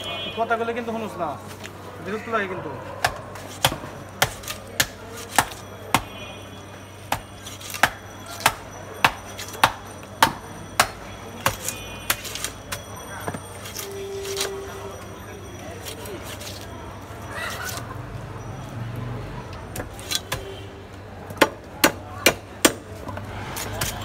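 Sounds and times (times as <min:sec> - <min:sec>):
cleaver chopping fish: 0:03.0 - 0:06.2, 0:07.1 - 0:14.6, 0:21.3 - 0:24.0.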